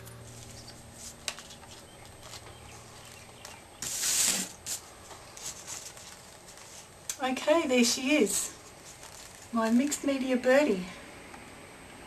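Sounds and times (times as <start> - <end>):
card scraping on paper: 3.8 - 4.8.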